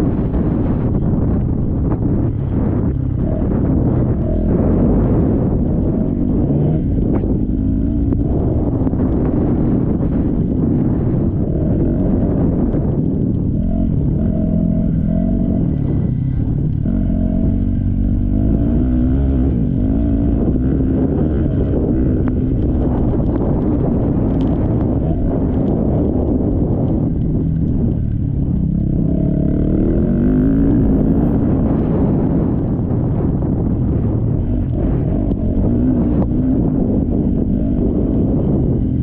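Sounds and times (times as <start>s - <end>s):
motocross bike engines revving: 0.0s - 39.0s.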